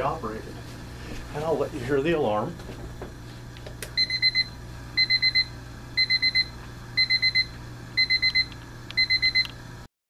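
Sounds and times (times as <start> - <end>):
alarm clock electronic beeps: 4.0 - 9.5.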